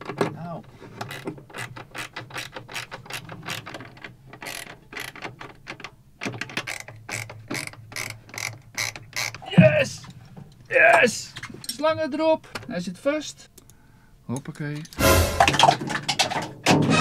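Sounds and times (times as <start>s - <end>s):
ratchet tool clicking: 4.4s - 5.2s, 6.6s - 9.4s.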